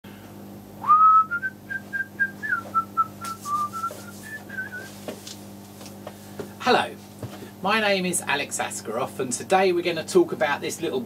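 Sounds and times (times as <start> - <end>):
man whistling a tune: 0.8 - 4.9.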